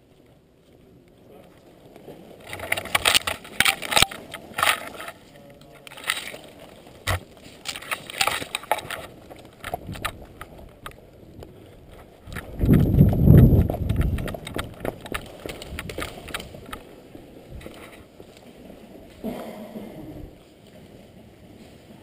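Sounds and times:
low rumble on microphone: 0:09.8 - 0:16.7.

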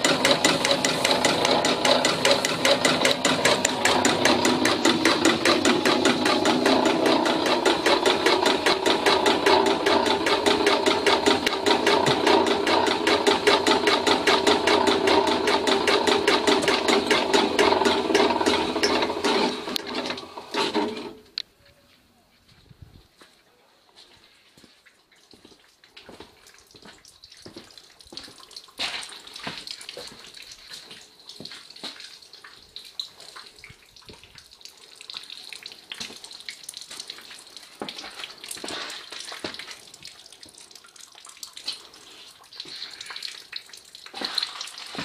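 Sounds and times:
water running: 0:26.4 - 0:45.0.

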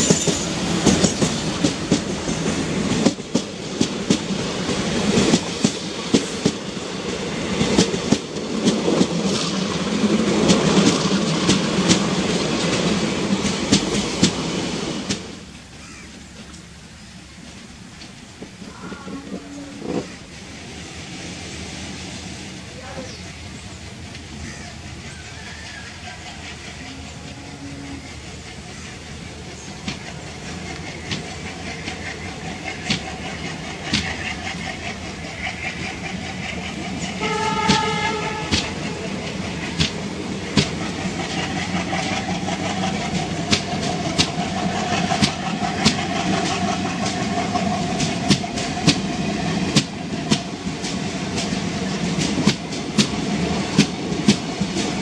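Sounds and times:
wheels clicking over rail joints: 0:00.0 - 0:20.7, 0:22.6 - 0:55.0
train coaches rumbling past: 0:00.0 - 0:55.0
train horn: 0:18.6 - 0:20.1, 0:26.8 - 0:28.2, 0:37.2 - 0:39.2.

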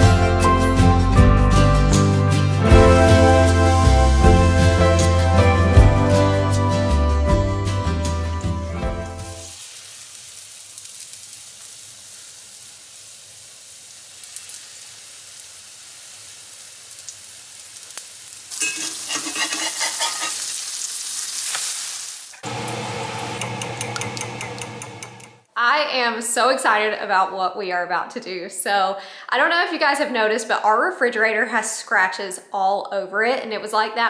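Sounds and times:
background music: 0:00.0 - 0:09.5
batter sizzling in hot oil: 0:09.3 - 0:24.2.

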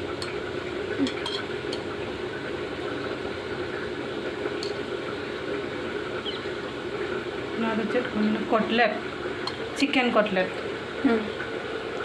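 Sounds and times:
machine hum and hiss: 0:00.0 - 0:12.0
spoon clinking steel bowl: 0:01.0 - 0:01.8.

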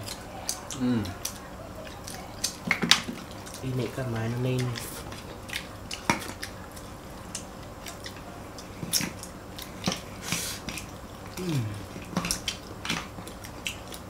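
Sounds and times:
chewing: 0:00.0 - 0:14.0
crab shells cracking: 0:00.0 - 0:14.0
short falling vocal sound: 0:11.4 - 0:11.8.

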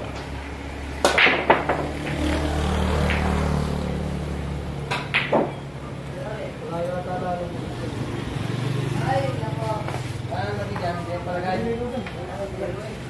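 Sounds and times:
billiard balls clacking: 0:00.0 - 0:04.0, 0:04.7 - 0:05.8
balls rolling across table: 0:00.0 - 0:04.1
cue striking cue ball: 0:01.0 - 0:03.5, 0:04.9 - 0:05.6.

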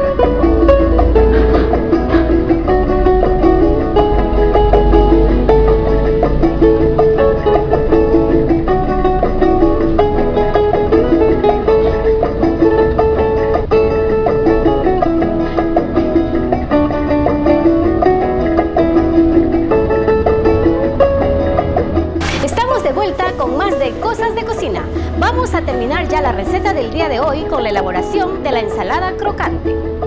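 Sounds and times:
plucked string music: 0:00.0 - 0:30.0.

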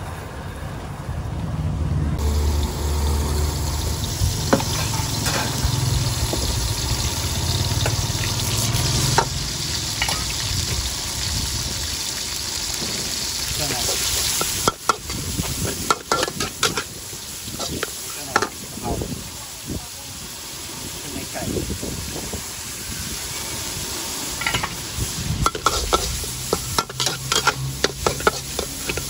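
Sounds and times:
oil sizzling in a wok: 0:02.2 - 0:29.0
metal spatula scraping a wok: 0:04.5 - 0:06.6, 0:13.2 - 0:18.6, 0:24.3 - 0:29.0.

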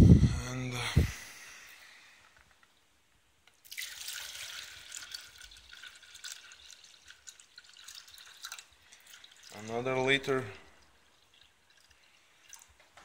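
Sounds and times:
water pouring into plastic jug: 0:03.5 - 0:13.0.

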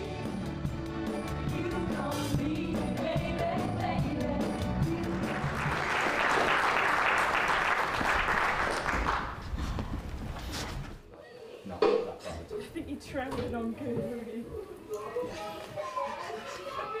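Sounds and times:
music with singing: 0:00.0 - 0:05.8
audience applauding: 0:05.1 - 0:09.4.

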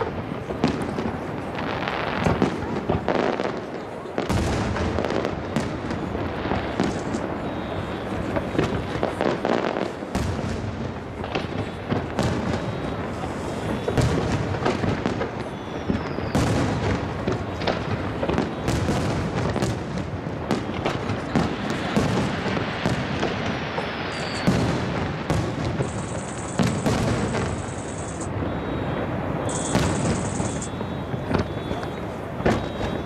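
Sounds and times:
firework booms and cracks: 0:00.0 - 0:33.0
faint falling whistle: 0:24.1 - 0:24.5, 0:27.6 - 0:33.0.

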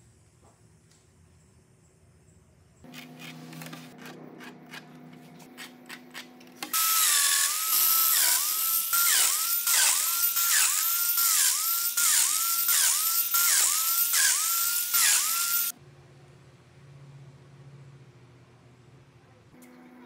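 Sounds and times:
power joiner motor whine: 0:06.6 - 0:15.7.

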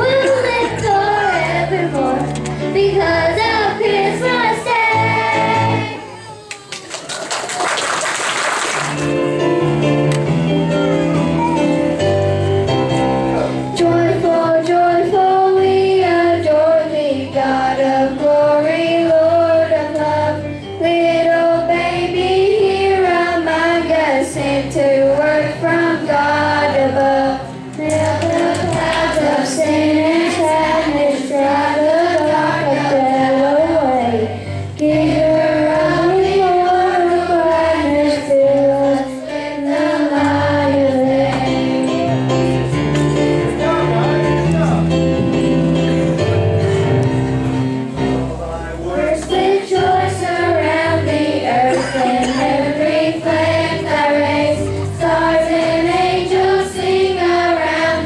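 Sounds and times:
children's choir singing: 0:00.0 - 0:06.3, 0:13.8 - 0:42.9, 0:48.8 - 0:58.0
low accompaniment notes: 0:09.0 - 0:58.0.

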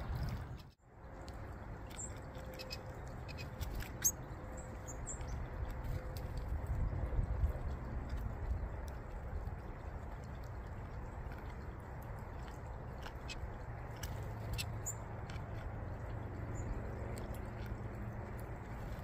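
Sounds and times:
steady low rumble: 0:00.0 - 0:19.0
birds cracking seed clicks: 0:08.0 - 0:19.0.

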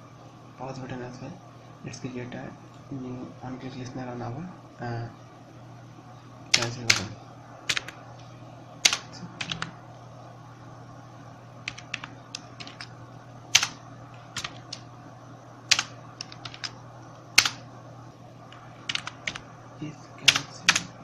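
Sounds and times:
faint low hum: 0:00.0 - 0:21.0
keyboard typing: 0:06.5 - 0:07.1, 0:07.7 - 0:08.0, 0:08.8 - 0:09.8, 0:11.6 - 0:12.9, 0:13.5 - 0:14.8, 0:15.7 - 0:17.6, 0:18.5 - 0:19.4, 0:20.2 - 0:20.9.

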